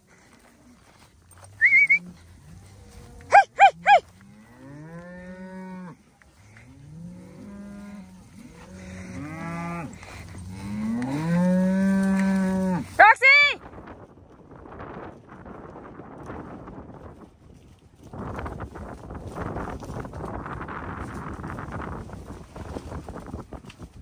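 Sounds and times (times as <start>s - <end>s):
short high calls: 1.5s - 2.1s, 3.3s - 4.0s
cattle mooing: 1.6s - 12.9s.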